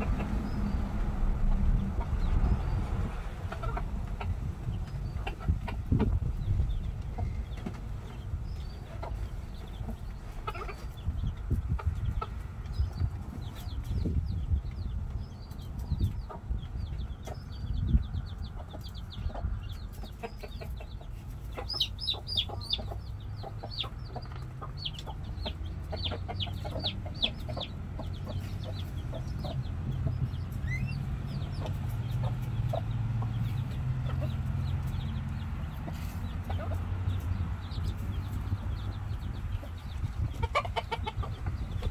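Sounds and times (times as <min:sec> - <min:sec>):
low rumble: 0:00.0 - 0:07.7
chickens clucking: 0:00.0 - 0:41.9
chicks peeping: 0:00.0 - 0:41.9.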